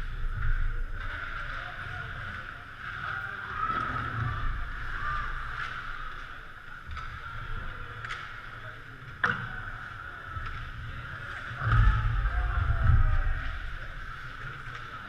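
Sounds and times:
loud low rumble: 11.6s - 13.9s.

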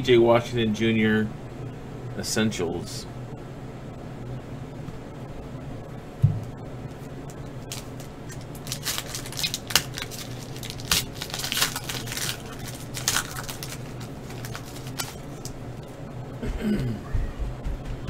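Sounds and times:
foil wrapper tearing and crinkling: 7.6s - 15.6s.

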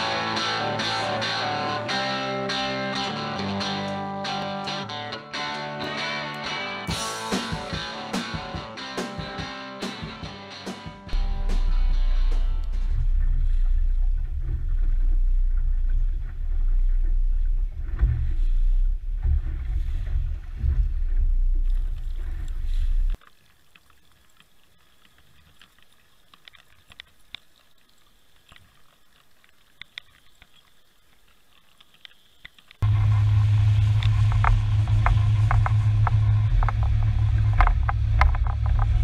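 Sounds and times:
boat engine rumble: 11.1s - 23.2s, 32.8s - 39.0s
small ticks underwater: 21.6s - 32.8s.

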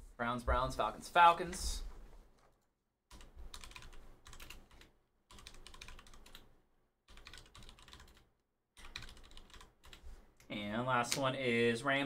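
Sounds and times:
computer keyboard typing: 3.1s - 6.5s, 7.1s - 10.0s.

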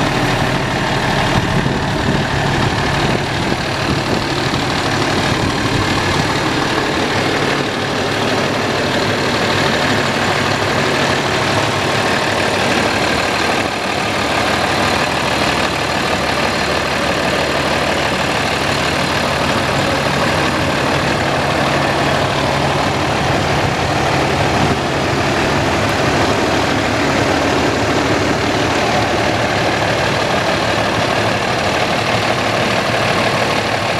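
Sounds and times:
truck diesel engine idling: 0.0s - 33.9s.

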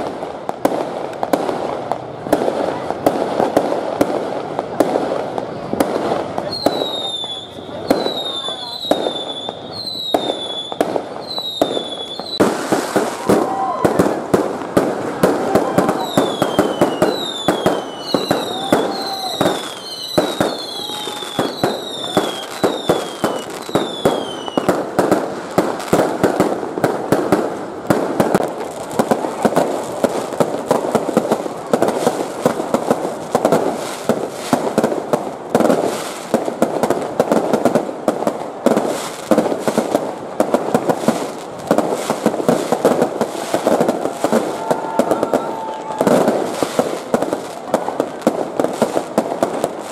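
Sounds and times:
fireworks bangs and crackles: 0.0s - 49.9s
falling fireworks whistles: 5.4s - 35.0s, 40.7s - 47.5s.

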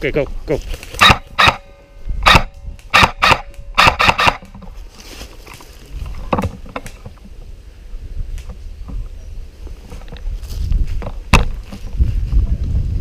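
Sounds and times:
airsoft rifle shots: 1.0s - 4.6s
rustling through leaf litter: 4.8s - 6.0s.

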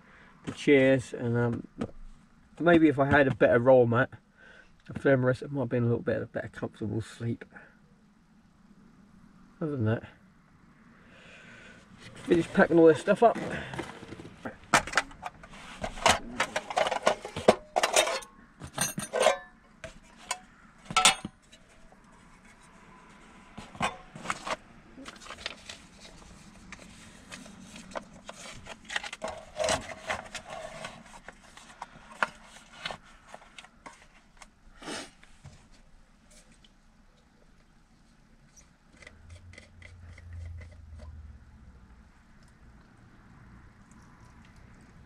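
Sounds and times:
metal cook kit clattering: 15.9s - 19.6s, 20.9s - 21.3s.

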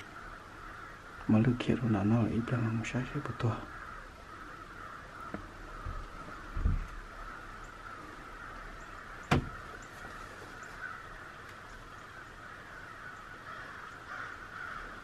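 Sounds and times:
sharp knock: 9.3s - 9.6s.

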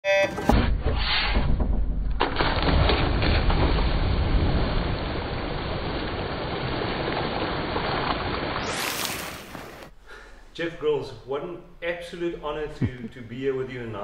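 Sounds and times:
rushing water: 4.4s - 10.0s.

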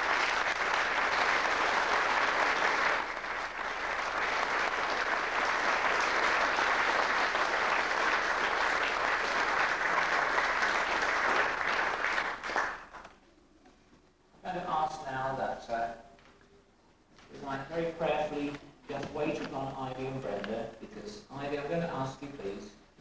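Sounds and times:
crowd applauding: 0.0s - 13.1s.

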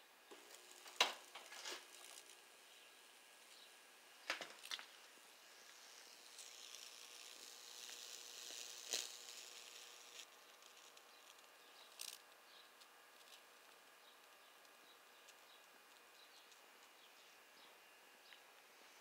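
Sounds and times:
wood sizzling from high voltage: 0.3s - 16.9s
sharp electric crackles: 4.5s - 12.2s.

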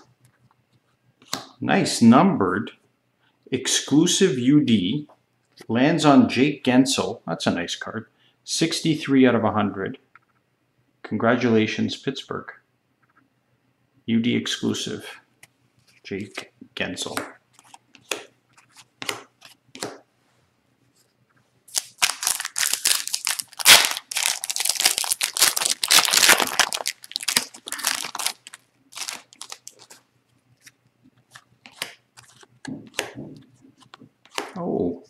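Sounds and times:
cards rustling: 17.1s - 20.0s, 21.7s - 34.6s
foil wrapper tearing and crinkling: 21.7s - 30.0s.

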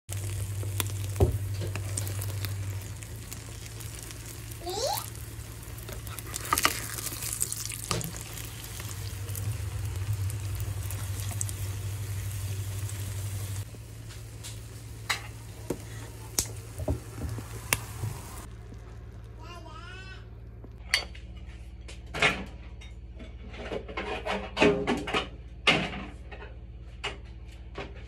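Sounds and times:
egg sizzling in oil: 0.1s - 19.4s.

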